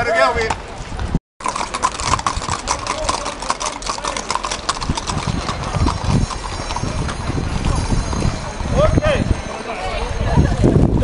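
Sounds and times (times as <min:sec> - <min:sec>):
horse hooves on pavement: 0:00.4 - 0:09.1.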